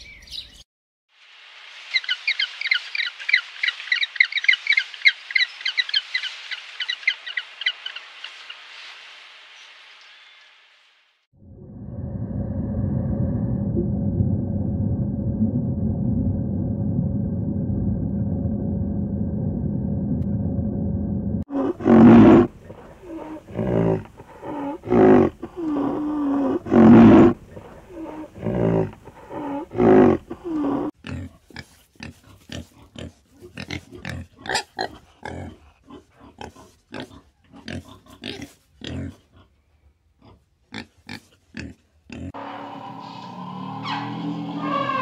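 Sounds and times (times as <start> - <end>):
steady hum: 11.4 - 21.4
pigs grunting and squealing: 21.5 - 39.6, 40.2 - 45.0.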